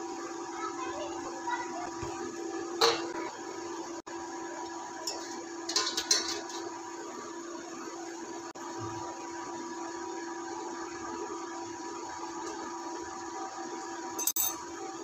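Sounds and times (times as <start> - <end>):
metal cookware clanking: 2.8 - 3.2, 5.0 - 6.7, 14.2 - 14.7.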